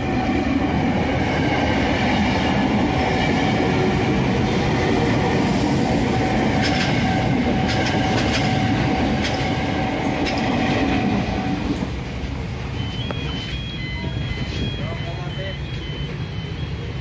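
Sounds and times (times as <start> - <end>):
electric train rumbling past: 0.0 - 17.0
wheels clacking over rail joints: 6.4 - 13.6.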